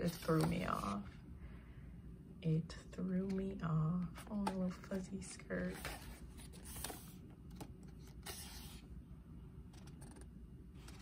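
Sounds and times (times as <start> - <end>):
paper pages rustling: 0.0 - 1.0, 5.7 - 8.8.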